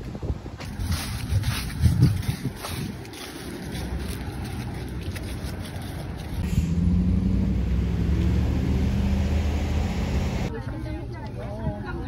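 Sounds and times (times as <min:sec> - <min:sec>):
road traffic: 0:00.0 - 0:10.5
vehicle engine humming: 0:02.7 - 0:10.5.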